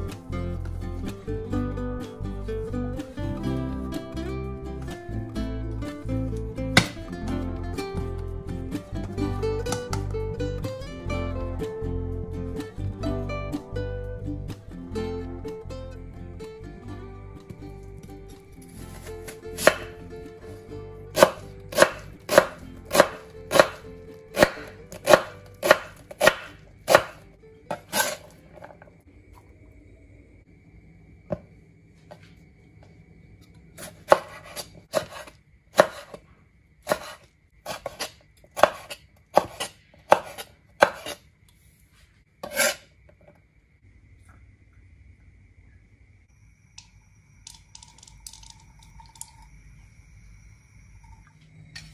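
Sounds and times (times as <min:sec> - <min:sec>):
knife chopping on cutting board: 0:06.8 - 0:07.0, 0:19.2 - 0:19.9, 0:21.2 - 0:23.8, 0:24.4 - 0:28.3, 0:33.8 - 0:36.2, 0:36.9 - 0:41.2, 0:42.4 - 0:42.8.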